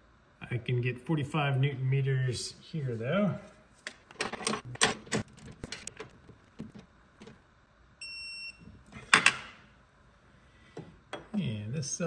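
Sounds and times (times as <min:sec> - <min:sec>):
torque wrench beep: 0:08.0 - 0:08.6.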